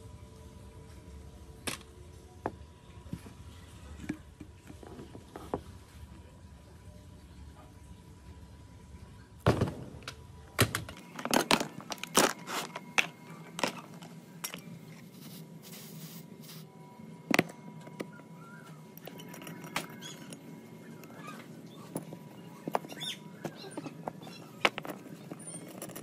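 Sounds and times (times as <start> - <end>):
metal and plastic parts clinking: 10.9 - 14.7, 19.0 - 21.2, 21.8 - 26.0.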